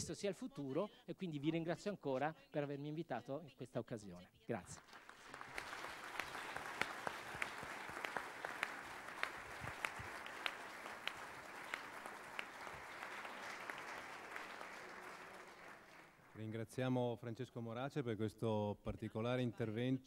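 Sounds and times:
sharp close claps: 4.8 - 16.4
audience applauding: 4.8 - 16.5.

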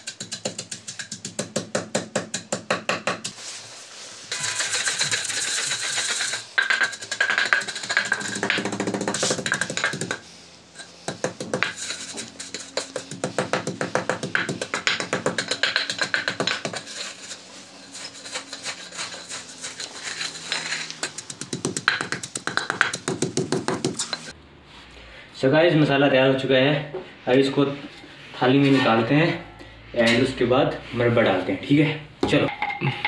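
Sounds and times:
pestle pounding in stone mortar: 0.0 - 3.3, 4.3 - 10.2, 11.0 - 17.2, 17.9 - 24.3.

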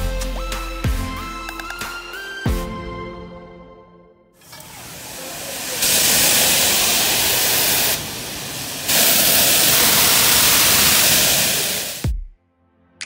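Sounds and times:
pressure washer spraying water: 4.4 - 12.1.

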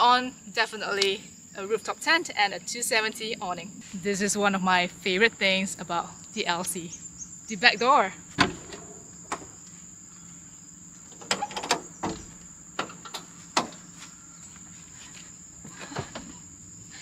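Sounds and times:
crickets chirping: 0.0 - 17.0
metallic clicks of door latches: 11.1 - 13.8
bump of person climbing in: 15.0 - 16.5.

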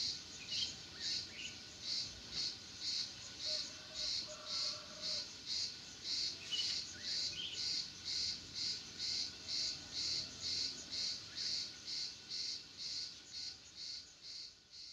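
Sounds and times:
insect chirping: 0.0 - 14.9
faint bird chirps: 6.4 - 7.8.

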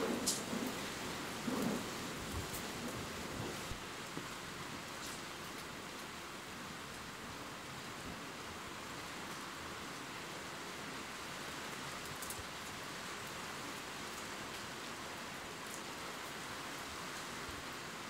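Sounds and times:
rain hissing: 0.0 - 6.2
raindrop ticks: 0.1 - 0.8, 12.0 - 12.8.

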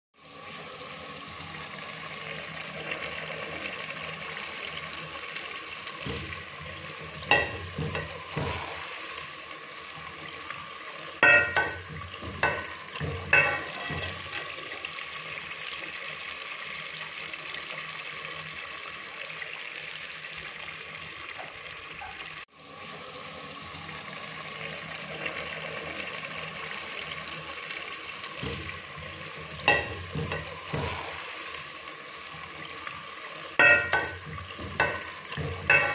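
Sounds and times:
potatoes sizzling in a pot: 0.2 - 35.9
steel ladle scraping a pot: 11.2 - 14.5, 33.6 - 35.9.

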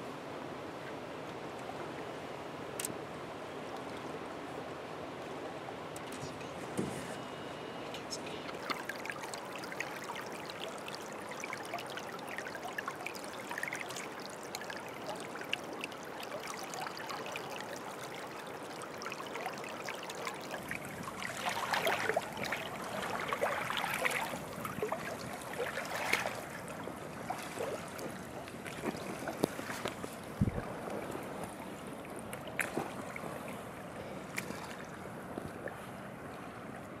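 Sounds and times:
creek water trickling over gravel: 8.2 - 35.8
footsteps splashing through water: 21.1 - 26.5.

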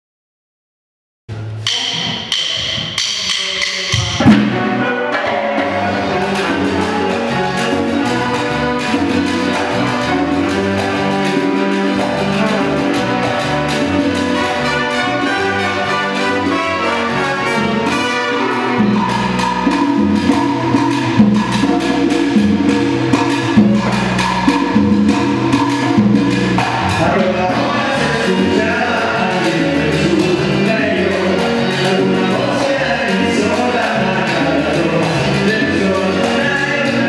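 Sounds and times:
salsa band playing: 1.3 - 37.0
person singing: 3.0 - 13.5, 26.8 - 37.0.

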